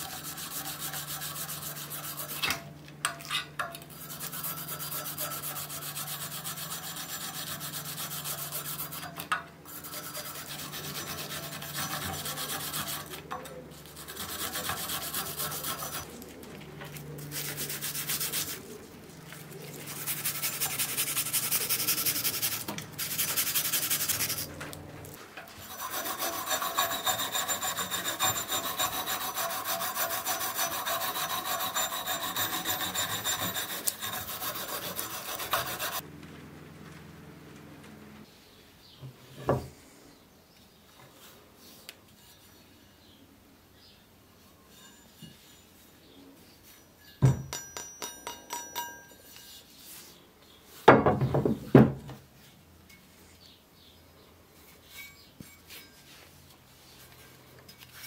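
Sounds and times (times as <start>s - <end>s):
abrasive rubbing and scraping: 3.9s - 36.0s.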